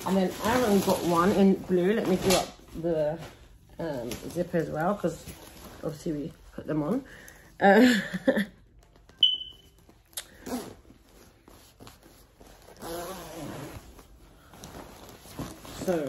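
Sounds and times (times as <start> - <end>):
short high beep: 9.2 - 9.7.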